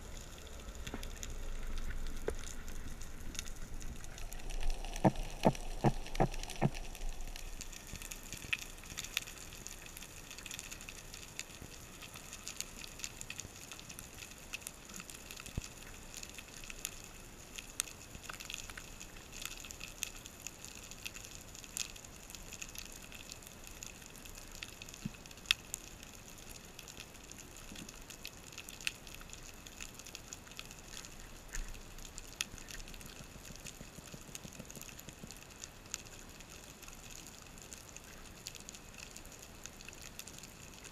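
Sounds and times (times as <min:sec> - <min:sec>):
underwater hiss: 0:00.0 - 0:08.6
sharp clicks and crackles: 0:00.1 - 0:40.9.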